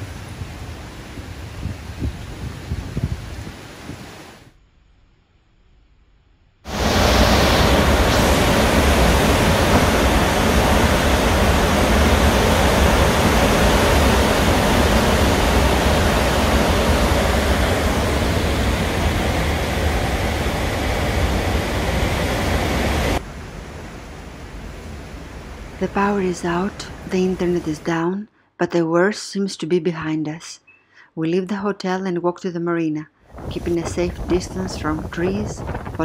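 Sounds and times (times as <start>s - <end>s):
strong wind: 0.0s - 4.6s, 6.7s - 25.9s, 33.3s - 36.0s
torrential rain on building: 6.7s - 19.3s.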